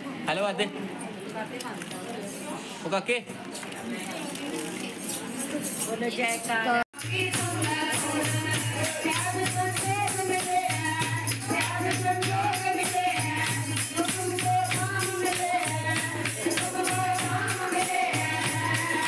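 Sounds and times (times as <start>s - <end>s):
percussion beat: 5.6s - 19.0s
song with singing: 7.0s - 19.0s.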